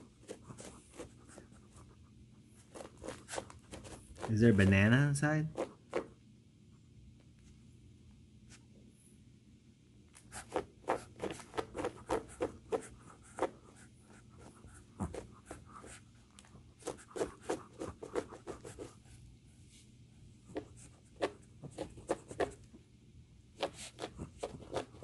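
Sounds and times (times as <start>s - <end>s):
dog claws scratching carpet: 0.0s - 4.7s, 5.5s - 6.2s, 10.1s - 19.2s, 20.4s - 22.8s, 23.6s - 25.0s.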